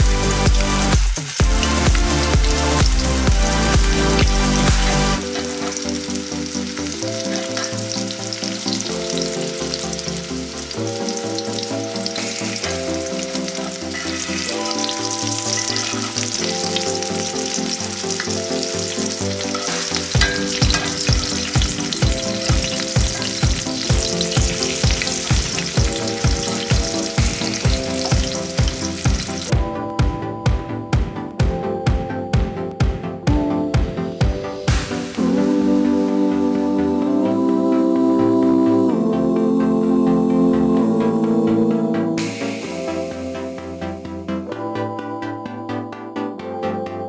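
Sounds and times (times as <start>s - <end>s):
fish frying in a skillet: 0.0s - 29.5s
background music: 0.0s - 47.0s.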